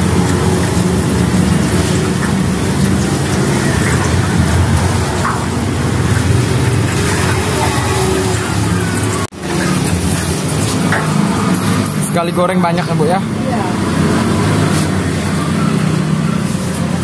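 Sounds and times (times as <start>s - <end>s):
tofu deep-frying in oil: 0.0s - 12.1s
wire skimmer stirring: 0.0s - 13.0s
road traffic rumble: 0.0s - 17.0s.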